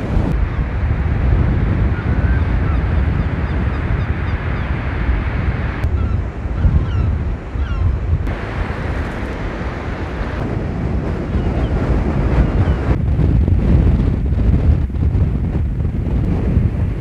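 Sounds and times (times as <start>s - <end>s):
wind buffeting microphone: 0.0s - 17.0s
birds chirping: 2.0s - 8.3s
surf breaking on beach: 8.2s - 17.0s.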